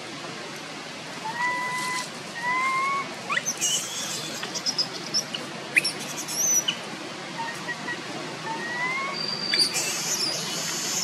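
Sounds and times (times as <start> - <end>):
young monkey crying: 1.2 - 6.8, 7.4 - 11.0.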